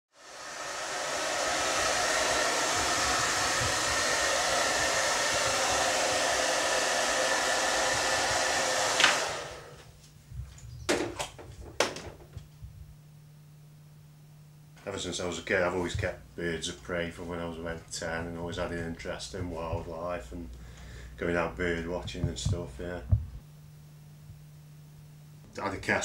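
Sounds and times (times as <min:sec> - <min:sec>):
hair dryer blowing: 0:00.1 - 0:09.9.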